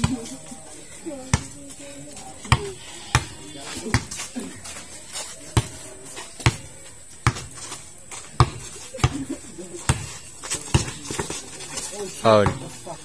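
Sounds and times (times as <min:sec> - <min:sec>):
basketball bouncing on hard court: 0:02.4 - 0:04.2, 0:06.4 - 0:07.5, 0:08.4 - 0:09.2.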